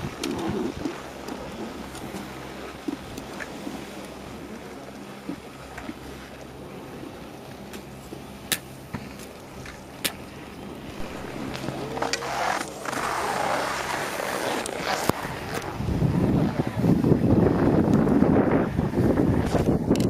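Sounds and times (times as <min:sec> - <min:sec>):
low steady hum: 0:00.0 - 0:20.0
skis scraping on snow: 0:11.0 - 0:15.8.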